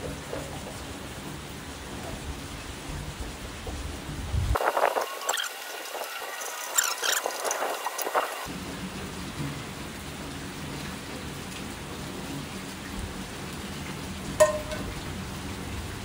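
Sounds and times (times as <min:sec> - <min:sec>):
rain hiss: 0:00.0 - 0:16.0
frying pan clanking on metal table: 0:14.4 - 0:14.9.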